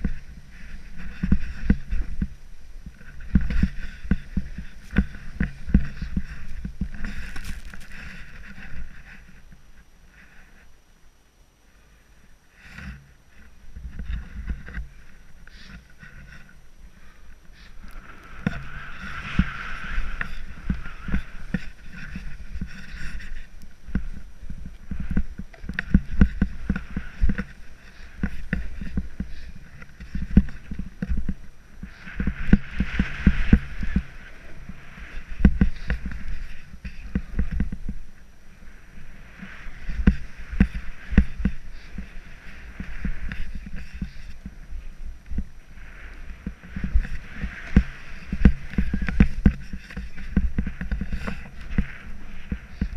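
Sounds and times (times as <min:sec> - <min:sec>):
snowboard scraping on snow: 0:00.0 - 0:09.4, 0:13.8 - 0:52.9.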